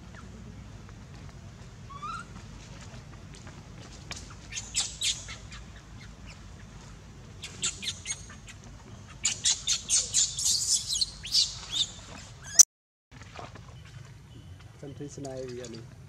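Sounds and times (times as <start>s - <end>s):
baby monkey squealing cries: 1.9s - 2.3s, 4.5s - 6.4s, 7.4s - 8.5s, 9.1s - 12.6s.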